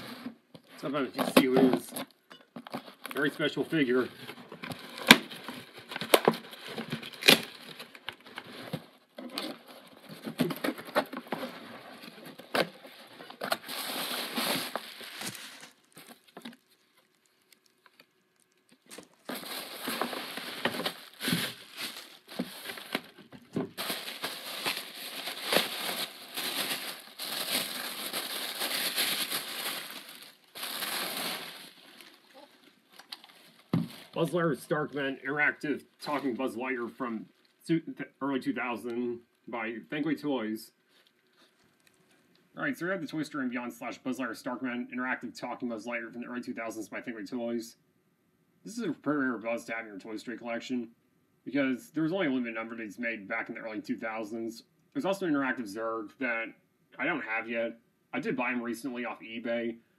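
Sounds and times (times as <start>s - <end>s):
plastic packing crinkling: 4.1s - 34.4s
cardboard rustling and tearing: 4.3s - 18.1s, 18.7s - 34.2s.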